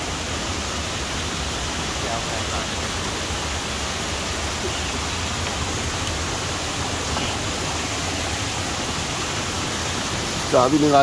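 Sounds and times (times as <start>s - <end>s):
stream rushing over boulders: 0.0s - 11.0s.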